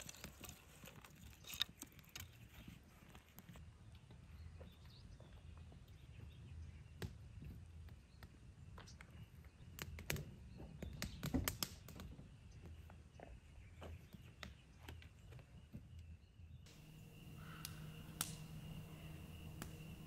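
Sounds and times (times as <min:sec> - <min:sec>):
campfire crackling and popping: 0:09.6 - 0:12.2, 0:16.7 - 0:20.0
faint low rumble: 0:16.7 - 0:20.0.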